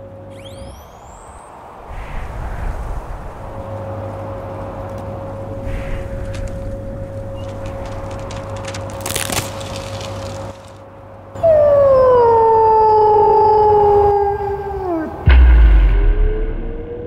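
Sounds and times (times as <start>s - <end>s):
steady low hum: 0.0s - 17.0s
wolf howling: 11.4s - 15.3s
sudden low thump: 15.3s - 17.0s.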